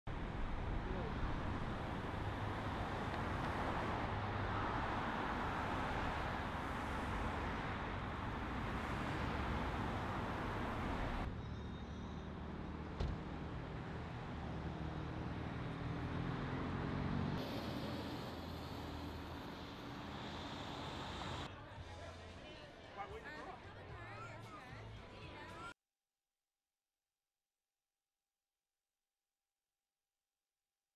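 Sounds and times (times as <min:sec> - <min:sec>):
cars passing: 0:00.1 - 0:21.5.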